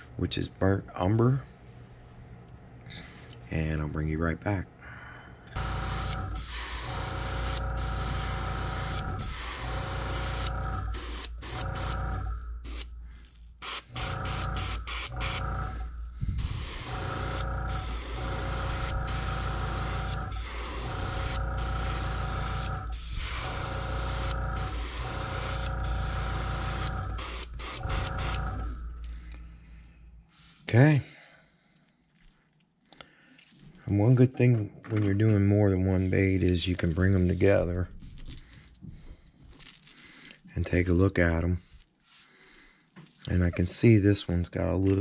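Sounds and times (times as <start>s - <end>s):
low hum: 4.6s - 31.4s
airbrush spraying hiss: 5.9s - 12.0s, 16.3s - 28.4s.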